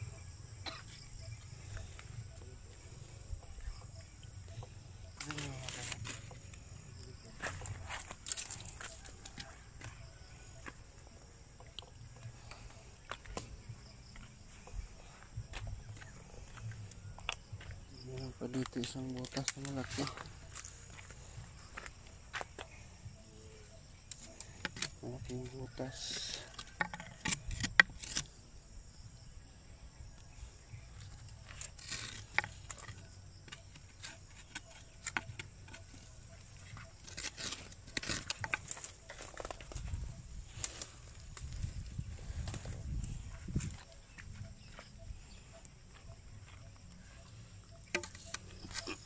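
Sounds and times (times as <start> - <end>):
high insect drone: 0.0 - 49.0
bamboo stick tapping rock: 47.8 - 49.0.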